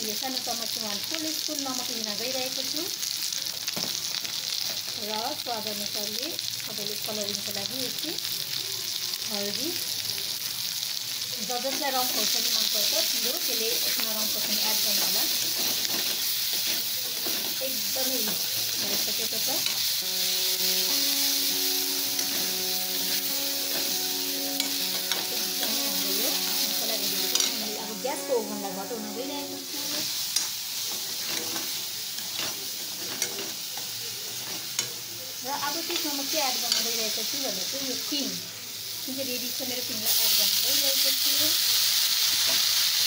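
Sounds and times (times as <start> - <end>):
vegetables sizzling in hot oil: 0.0 - 43.0
metal spoon scraping a wok: 13.9 - 20.0, 26.6 - 27.6, 30.3 - 33.6.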